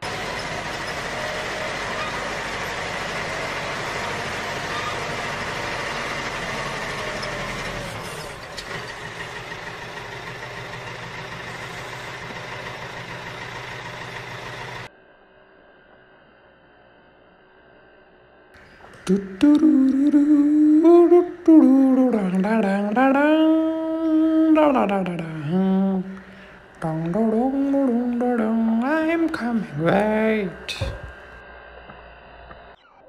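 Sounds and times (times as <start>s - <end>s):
diesel excavator engine running: 0.0s - 15.3s, 18.3s - 33.0s.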